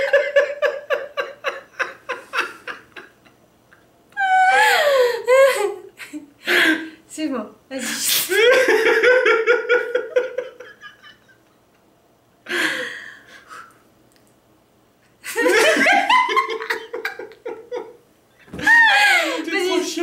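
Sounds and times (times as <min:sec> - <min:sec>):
person giggling: 0:15.3 - 0:19.4.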